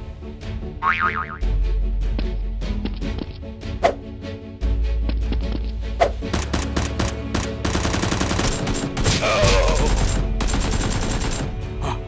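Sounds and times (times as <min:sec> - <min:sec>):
background music: 0:00.0 - 0:12.0
gunshots: 0:06.3 - 0:11.6
automatic gunfire bursts: 0:06.4 - 0:09.1, 0:09.8 - 0:11.5.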